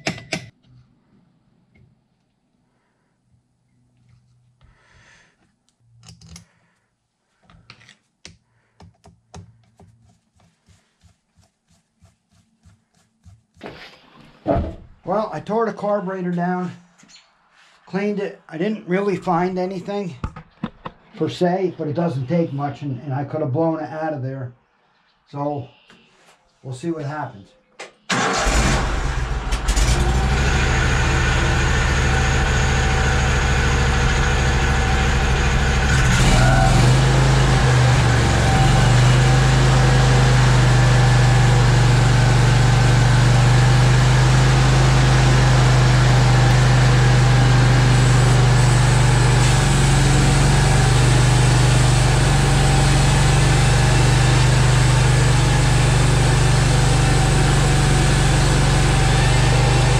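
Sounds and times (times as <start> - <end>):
gasoline engine starting and running: 27.9 - 59.9.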